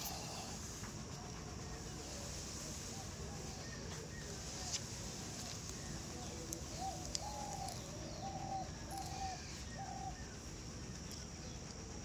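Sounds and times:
dove cooing: 6.2 - 10.4.

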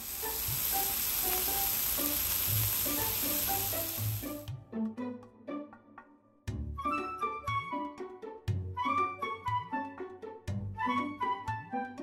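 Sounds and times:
food sizzling on cooking plate: 0.0 - 4.5.

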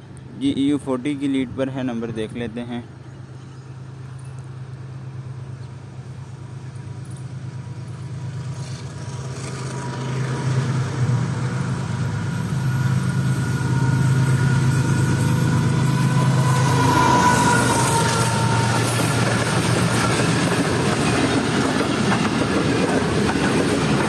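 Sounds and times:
locomotive engine drone: 2.8 - 24.0.

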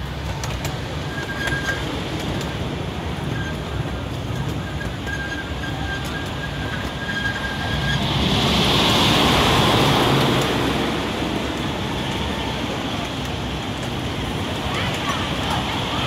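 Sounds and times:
rushing noise: 0.0 - 16.0
train wheels rumbling on rail: 0.0 - 16.0.

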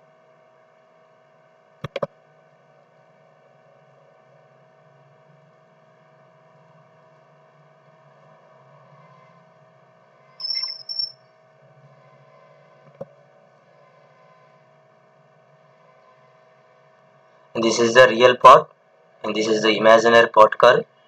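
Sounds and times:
faint room hum: 0.0 - 21.0
short high-pitched chirps: 10.4 - 11.2.

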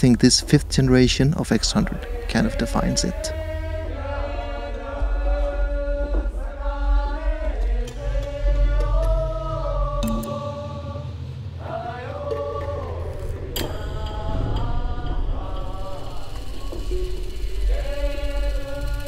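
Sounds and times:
low bass drone: 0.0 - 11.6
chanted voices holding long notes: 0.0 - 19.0.

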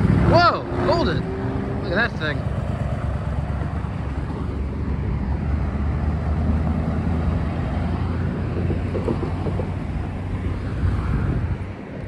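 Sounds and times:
pickup truck driving past: 0.0 - 11.8.

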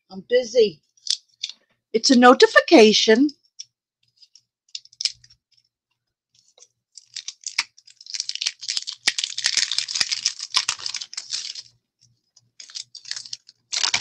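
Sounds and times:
plastic packaging crinkling: 4.2 - 5.6, 6.4 - 14.0.

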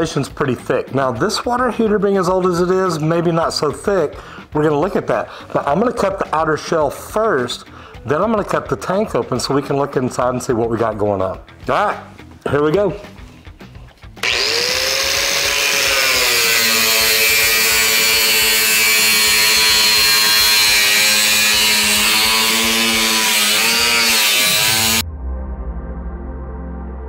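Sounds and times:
music: 0.0 - 27.0
angle grinder cutting metal: 14.2 - 25.0.

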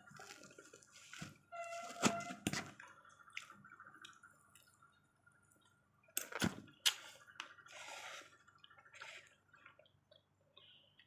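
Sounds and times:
person chewing food: 0.0 - 1.2, 5.6 - 11.0.

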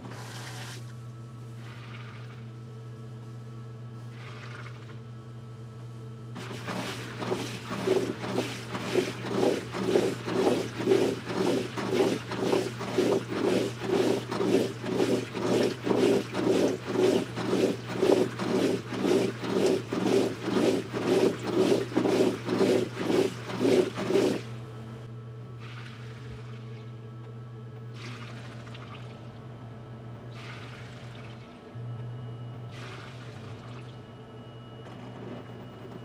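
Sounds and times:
washing machine sloshing water: 0.0 - 0.9, 1.5 - 2.5, 6.4 - 25.0, 25.6 - 26.9, 27.9 - 29.5, 30.3 - 31.7, 32.6 - 34.1
low motor hum: 0.0 - 36.0.

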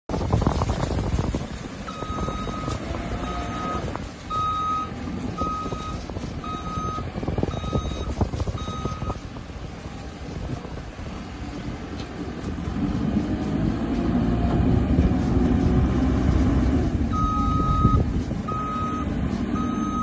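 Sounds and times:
diesel engine rumble: 0.0 - 20.0
reversing alarm beeping: 1.9 - 9.2, 17.1 - 20.0.

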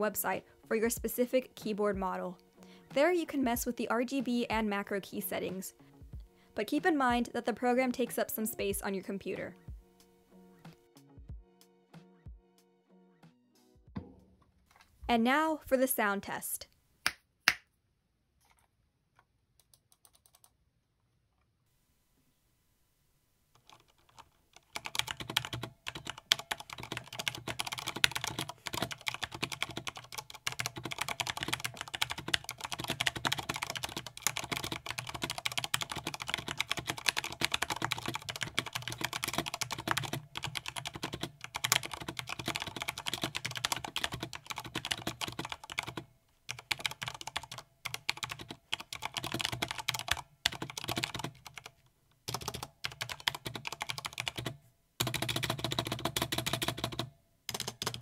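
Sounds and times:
mechanical keyboard typing: 19.6 - 20.5, 23.6 - 51.7, 52.3 - 58.0.

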